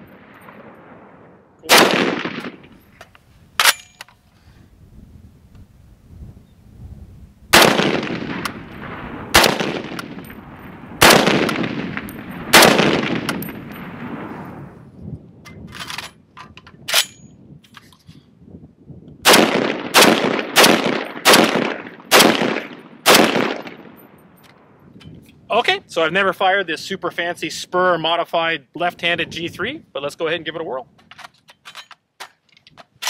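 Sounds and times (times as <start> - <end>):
rifle shots echoing: 0.0 - 2.8, 7.5 - 14.5, 19.2 - 24.2
magazine change clicks: 2.1 - 4.2.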